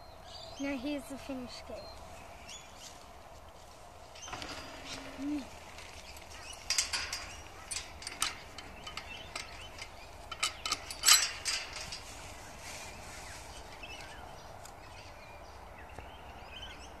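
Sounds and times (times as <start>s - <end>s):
chain latch rattling on gate: 4.1s - 12.6s
sharp metal clank: 4.2s - 12.2s.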